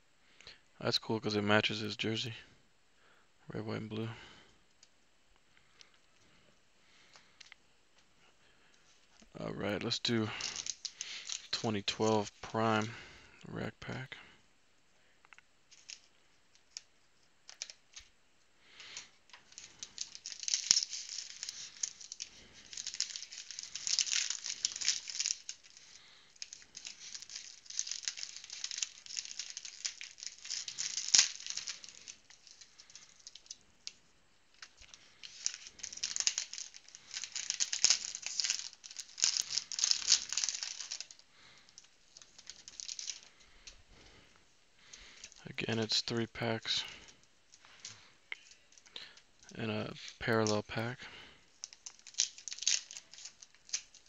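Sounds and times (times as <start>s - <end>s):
wrappers crinkling and tearing: 8.6s - 12.9s, 15.7s - 54.0s.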